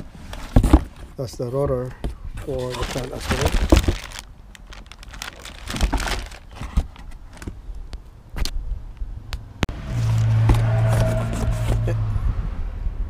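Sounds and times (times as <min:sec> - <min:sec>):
cardboard boxes rustling and knocking: 0:00.0 - 0:01.4, 0:02.4 - 0:07.6
plastic wrapping crinkling: 0:02.4 - 0:07.5.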